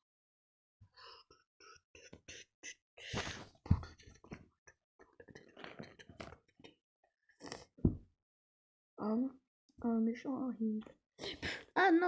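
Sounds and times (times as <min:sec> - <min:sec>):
breathy mouth sounds: 0:05.0 - 0:06.7, 0:07.3 - 0:07.8.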